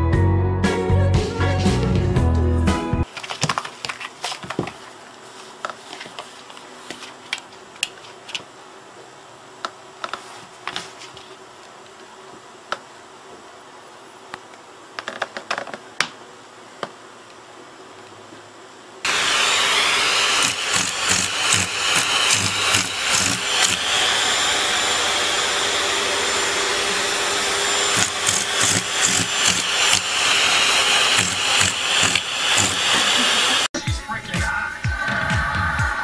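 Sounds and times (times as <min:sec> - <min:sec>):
vacuum cleaner running: 0:19.0 - 0:33.7.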